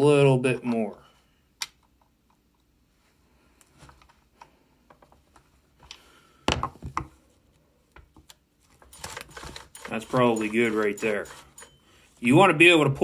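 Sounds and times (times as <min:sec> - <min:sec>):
chainsaw chain clicking: 0:08.9 - 0:11.7.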